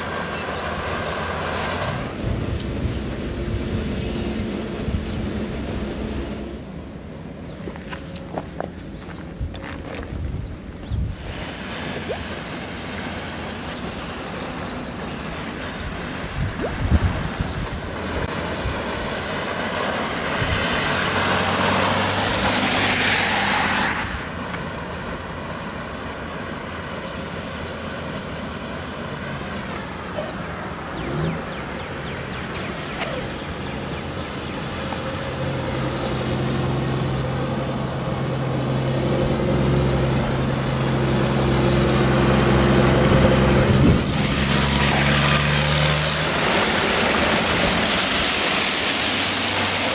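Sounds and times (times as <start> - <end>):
truck engine: 0.0 - 7.1, 28.8 - 49.9
tyres hissing through water: 11.2 - 26.2, 39.1 - 49.9.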